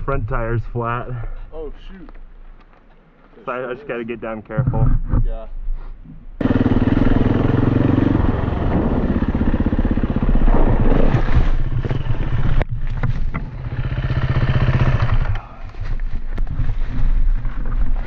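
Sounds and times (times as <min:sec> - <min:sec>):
dirt bike engine chugging: 0:06.4 - 0:11.0, 0:13.3 - 0:15.4.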